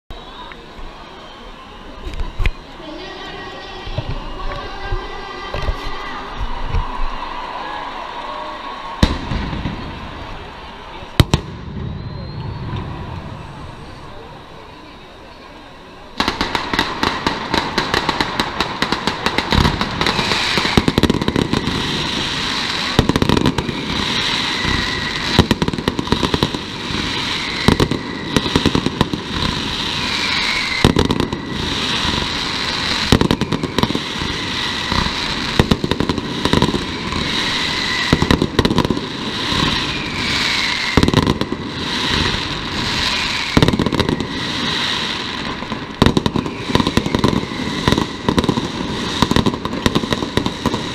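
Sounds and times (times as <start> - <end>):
firecrackers crackling: 0.2 - 50.9
falling firework whistles: 8.8 - 15.4, 16.2 - 50.9
heavy firework bangs: 8.9 - 13.8, 16.2 - 50.9.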